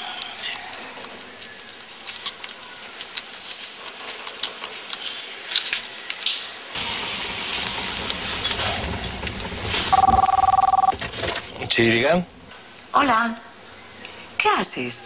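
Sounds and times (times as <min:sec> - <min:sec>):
road rumble and hiss: 0:05.0 - 0:10.0.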